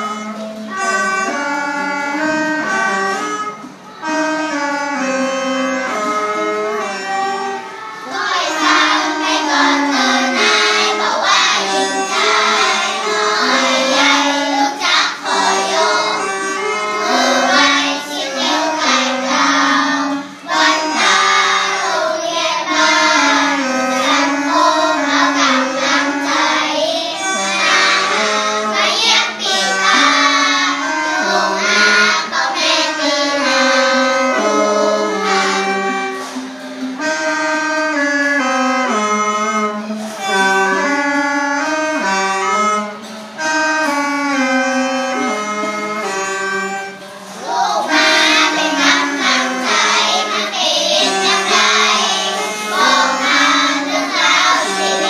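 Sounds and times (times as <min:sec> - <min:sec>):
children singing together: 0:00.0 - 0:55.0
free-reed pipes: 0:00.0 - 0:55.0.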